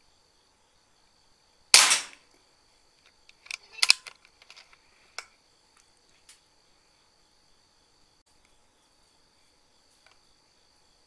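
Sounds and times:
crickets chirping: 0.0 - 11.0
air rifle shot: 1.8 - 2.2.

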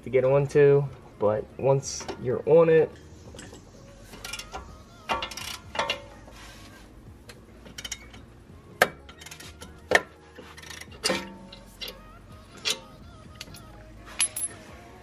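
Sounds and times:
socket ratchet clicking: 3.4 - 6.1, 7.3 - 13.7.

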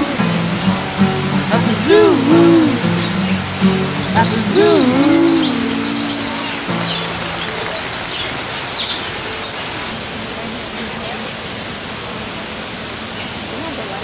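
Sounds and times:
steady background hiss: 0.0 - 14.0
small birds chirping: 0.3 - 10.1.

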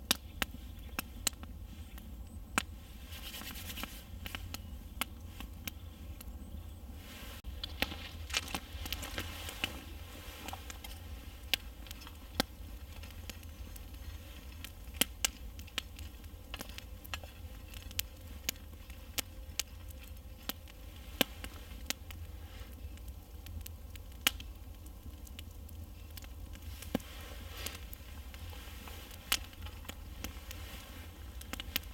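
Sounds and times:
campfire crackling and popping: 0.0 - 31.9
low steady rumble: 0.0 - 31.9.

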